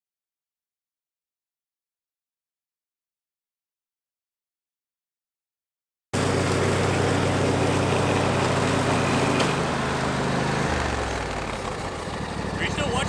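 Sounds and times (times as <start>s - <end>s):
riding lawn mower engine running: 6.2s - 13.0s.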